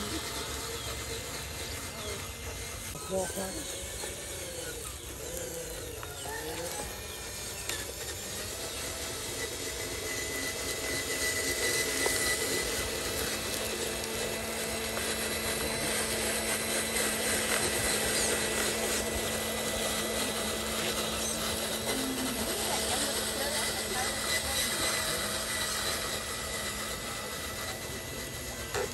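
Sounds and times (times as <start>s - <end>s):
toy truck electric motor whining: 0.0s - 28.9s.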